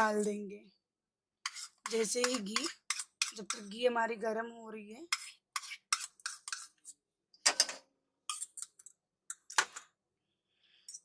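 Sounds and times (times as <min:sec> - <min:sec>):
spoon scraping and tapping metal bowl: 0:01.4 - 0:03.8, 0:05.1 - 0:09.9.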